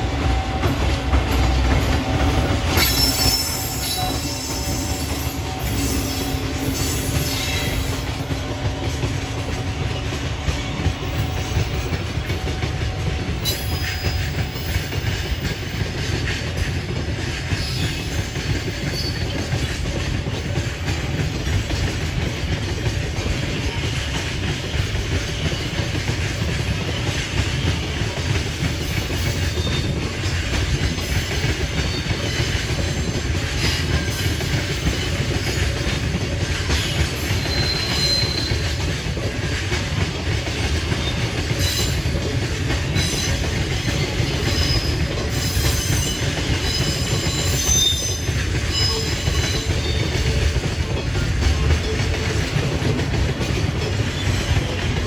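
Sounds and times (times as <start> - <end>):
train wheels rumbling on rails: 0.0 - 55.0
high-pitched wheel squeals: 2.7 - 8.0, 37.3 - 38.7, 44.4 - 50.0.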